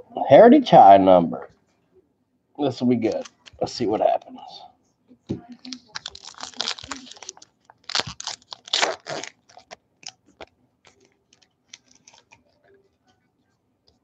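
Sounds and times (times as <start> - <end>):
wrapper tearing and crinkling: 5.6 - 12.4.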